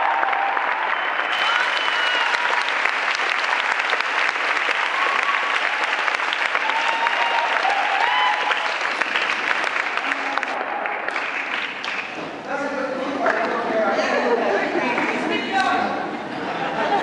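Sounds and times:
audience applauding: 0:00.0 - 0:12.2.

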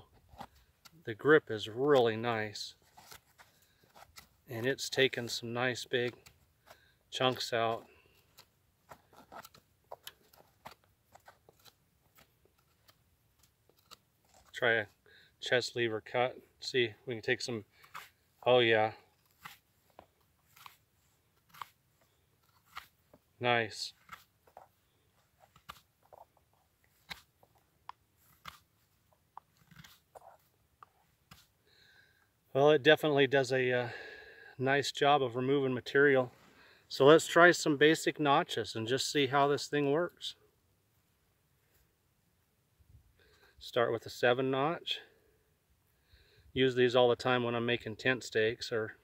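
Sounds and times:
knife carving wooden stick: 0:02.8 - 0:05.0, 0:06.0 - 0:14.6, 0:17.8 - 0:23.3, 0:23.9 - 0:31.6.

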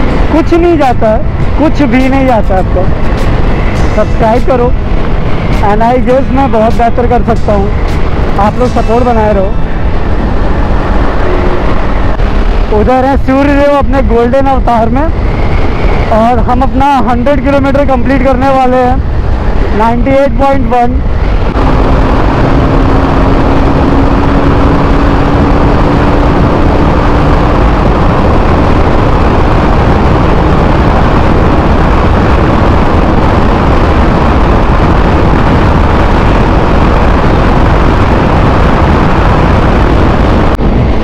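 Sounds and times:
motorcycle engine running: 0:00.0 - 0:12.7, 0:21.1 - 0:41.0
wind rush on microphone: 0:00.0 - 0:41.0.

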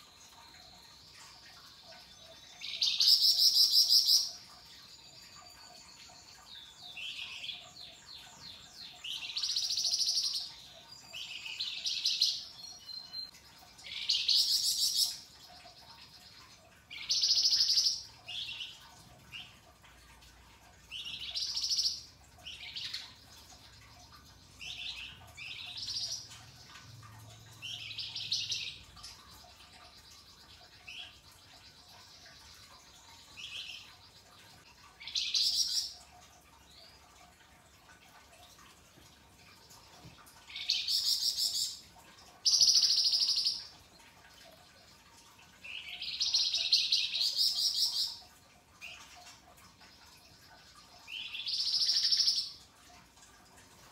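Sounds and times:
songbird singing: 0:00.0 - 0:19.7, 0:20.9 - 0:34.4, 0:39.6 - 0:43.8.

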